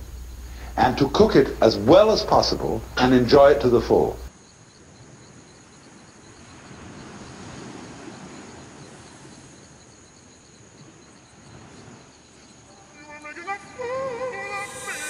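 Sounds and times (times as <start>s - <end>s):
soft hiss: 0.0s - 4.4s, 5.0s - 15.0s
night insects chirping: 0.0s - 15.0s
music: 12.8s - 15.0s.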